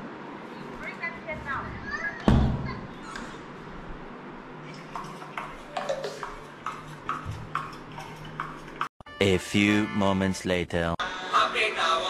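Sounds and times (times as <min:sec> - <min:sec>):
door banging shut: 0:02.2 - 0:02.9.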